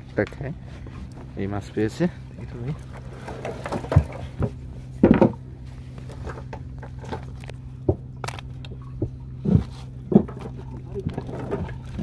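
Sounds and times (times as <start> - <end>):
boat engine humming: 0.0 - 12.0
knocks and rattles in plastic basket: 3.3 - 5.4.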